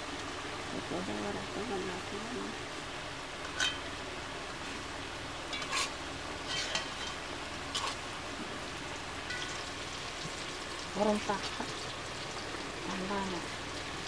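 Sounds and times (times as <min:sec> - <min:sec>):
fritters sizzling in oil: 0:00.0 - 0:14.0
metal spatula scraping pan: 0:05.5 - 0:08.0.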